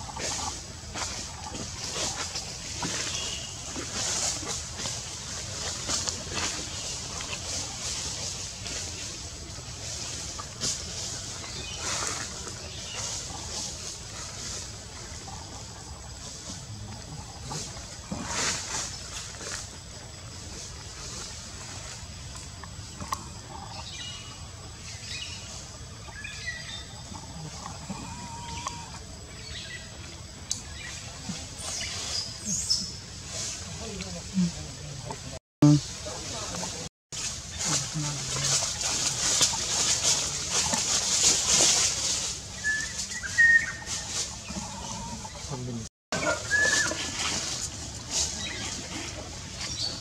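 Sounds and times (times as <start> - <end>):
high whistle-like animal calls: 42.6 - 45.3, 46.2 - 47.4.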